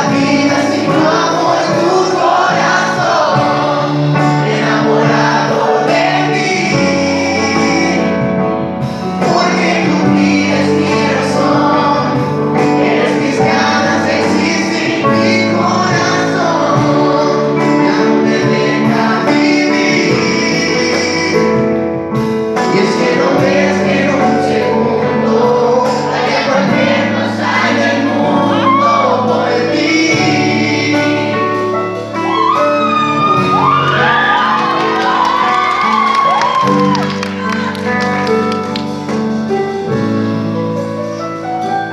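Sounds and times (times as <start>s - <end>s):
man singing into microphone: 0.0s - 32.0s
acoustic guitar: 0.0s - 41.9s
keyboard: 0.0s - 41.9s.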